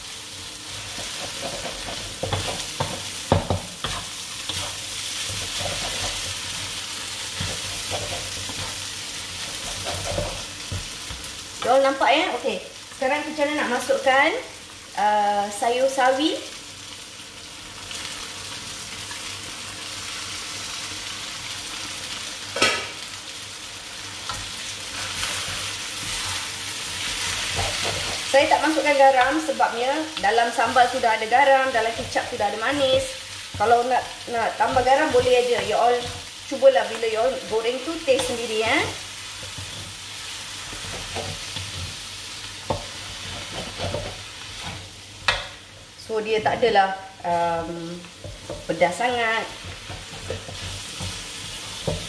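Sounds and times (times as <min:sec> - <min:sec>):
noodles sizzling in a wok: 0:00.0 - 0:52.0
wooden spatula stirring in wok: 0:00.6 - 0:11.8, 0:24.2 - 0:46.0, 0:48.0 - 0:52.0
spatula knocking on wok: 0:01.0 - 0:04.0.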